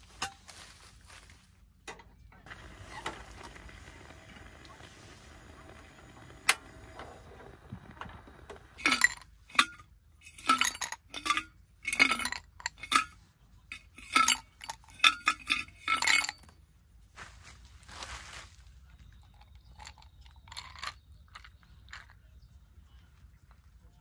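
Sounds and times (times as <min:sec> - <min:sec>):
dishes and utensils clinking: 0:08.8 - 0:16.5.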